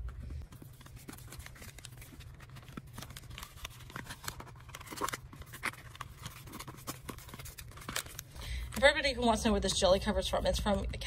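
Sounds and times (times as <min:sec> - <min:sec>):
plastic scraping against paper: 0:00.4 - 0:08.9.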